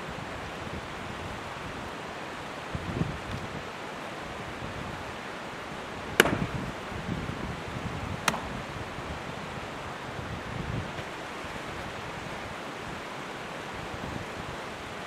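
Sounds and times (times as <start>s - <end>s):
mountain stream rushing: 0.0s - 15.0s
axe chopping log: 6.2s - 6.8s, 8.2s - 8.7s.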